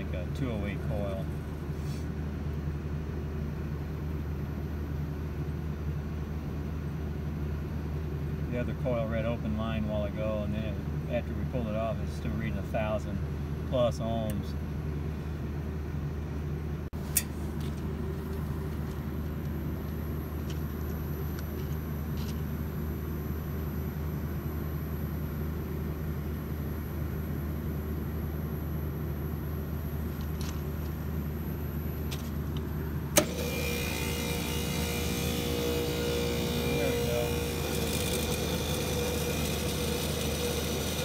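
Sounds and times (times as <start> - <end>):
outdoor unit machinery hum: 0.0 - 41.0
rough compressor hum: 0.0 - 41.0
contactor click: 32.5 - 41.0.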